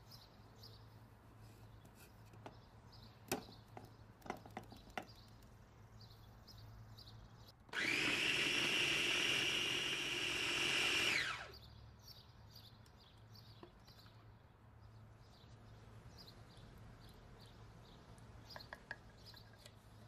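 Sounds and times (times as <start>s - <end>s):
electric food chopper motor running: 7.7s - 11.6s.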